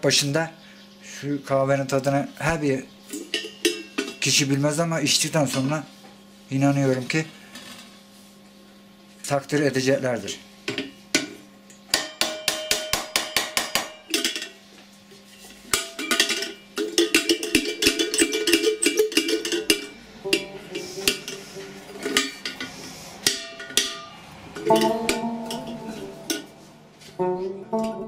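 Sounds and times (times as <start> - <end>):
hammer tapping on metal punch: 11.9 - 14.3
plucked-string tune: 19.8 - 22.5, 23.8 - 28.0.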